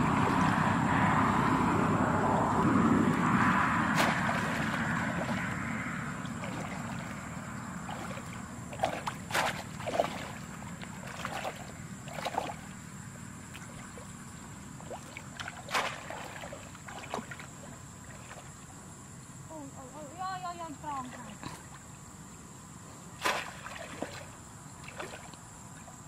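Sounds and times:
short sharp splashes: 0.0s - 0.6s, 3.9s - 12.8s, 13.5s - 18.6s, 23.2s - 25.9s
shallow water splashing: 0.0s - 18.9s, 23.1s - 26.0s.

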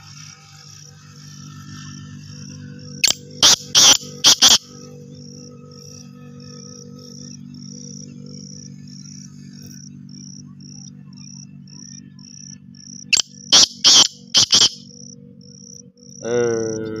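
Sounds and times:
cricket chirping: 0.0s - 17.0s
francolin harsh grating call: 3.0s - 4.7s, 13.1s - 14.9s.

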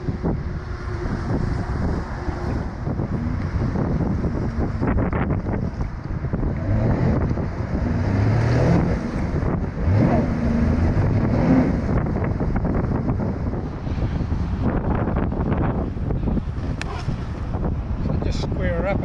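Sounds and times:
wind noise on microphone: 0.0s - 19.0s
jet ski engine revving: 0.2s - 14.3s
jet throwing water: 16.6s - 17.6s.

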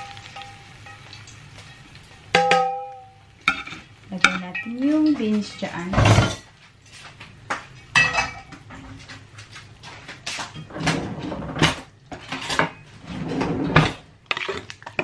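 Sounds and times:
utensils clinking on dishes: 7.9s - 12.9s.

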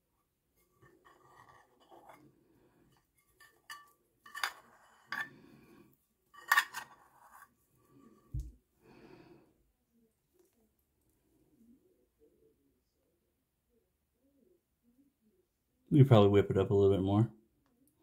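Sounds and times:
bowl and brush clinking: 2.9s - 5.5s, 6.3s - 7.5s.

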